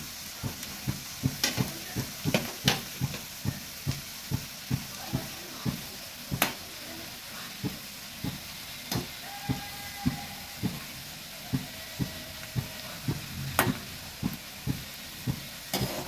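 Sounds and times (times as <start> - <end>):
nuts sizzling in hot ghee: 0.0 - 16.0
metal spatula scraping metal pan: 15.7 - 16.0.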